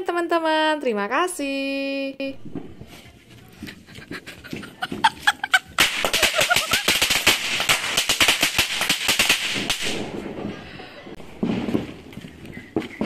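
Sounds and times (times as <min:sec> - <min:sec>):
firecrackers cracking: 0:03.8 - 0:13.0.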